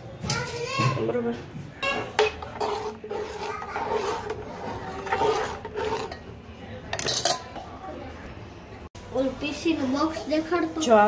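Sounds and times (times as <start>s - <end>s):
spoon scraping steel bowl: 1.8s - 7.5s.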